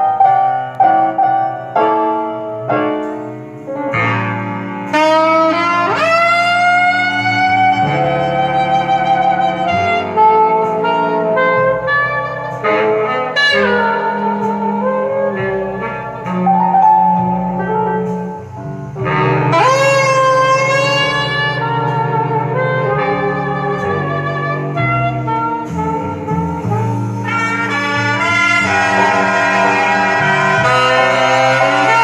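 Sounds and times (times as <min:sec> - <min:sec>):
jazz over loudspeakers: 0:00.0 - 0:32.0.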